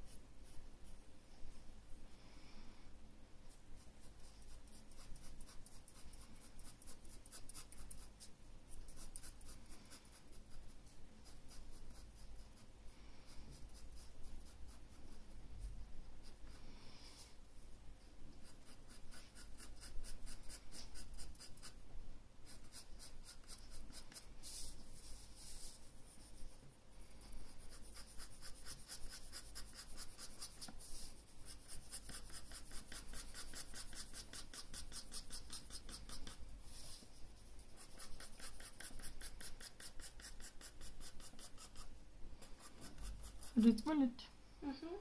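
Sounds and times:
pencil scratching on paper: 3.8s - 12.7s, 13.3s - 16.6s, 18.4s - 21.8s, 22.4s - 26.4s, 27.2s - 37.0s, 37.6s - 43.7s.

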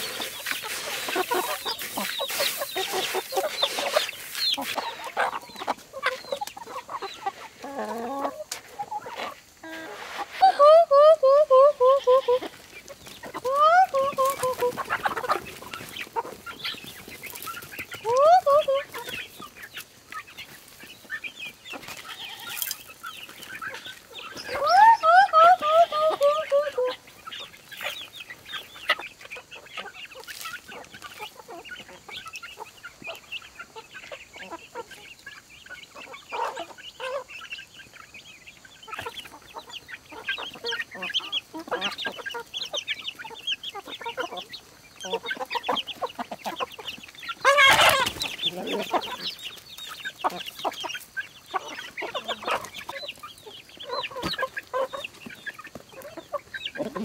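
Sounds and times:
loud chicken call: 0.0s - 15.4s, 18.0s - 19.2s, 24.3s - 27.4s, 47.4s - 49.3s
chickens clucking and chirping: 0.0s - 57.0s.

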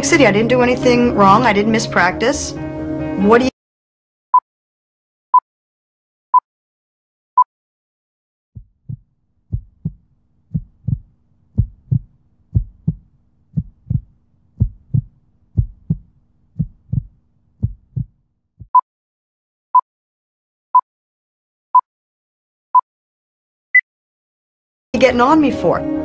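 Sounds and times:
heartbeat thumps: 8.6s - 18.8s.

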